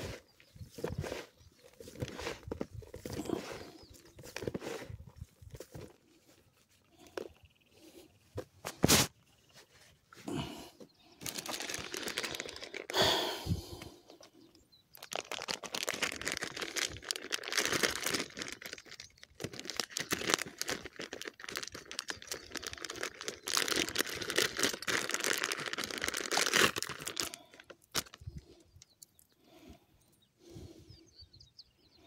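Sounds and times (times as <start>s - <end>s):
plastic bag crinkling: 11.2s - 13.4s, 14.9s - 28.5s.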